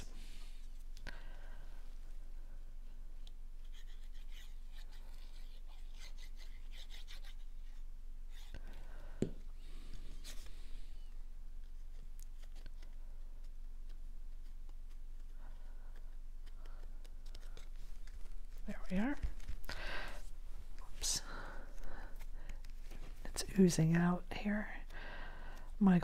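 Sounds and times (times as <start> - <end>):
paper handling: 11.6 - 21.0.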